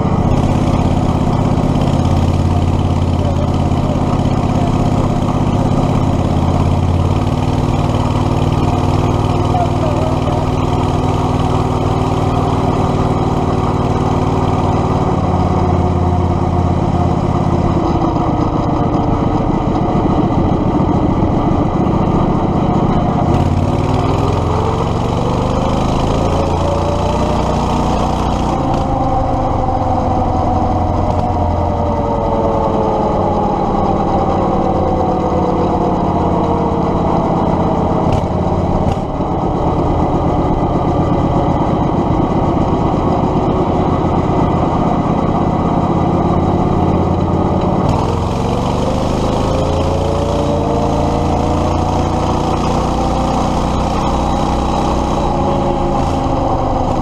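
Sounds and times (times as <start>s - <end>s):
go-kart engine running: 0.0s - 57.0s.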